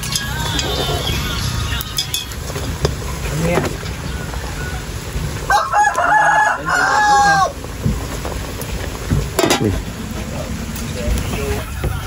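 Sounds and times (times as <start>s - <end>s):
rooster crowing: 4.0s - 7.6s.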